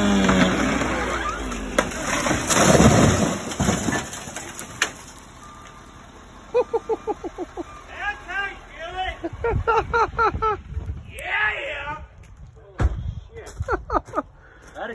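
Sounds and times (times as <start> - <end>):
tree cracking: 0.0 - 5.3
tree crashing to ground: 0.0 - 5.4
rumble of settling debris: 0.2 - 5.9.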